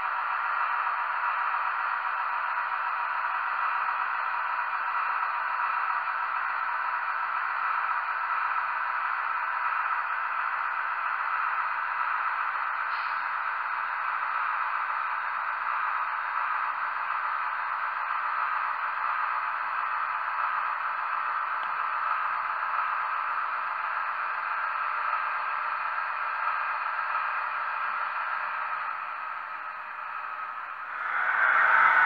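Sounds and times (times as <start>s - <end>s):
thin hissing engine drone: 30.7s - 32.0s.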